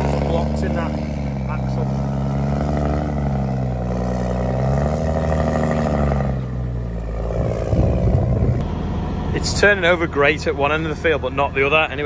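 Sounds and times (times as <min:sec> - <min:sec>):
tractor engine under load: 0:00.0 - 0:12.0.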